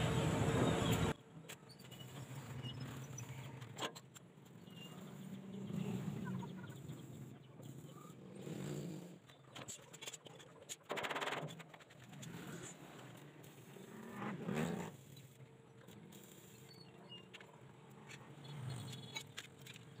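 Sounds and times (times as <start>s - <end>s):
arc welding buzz and crackle: 0.0s - 1.2s.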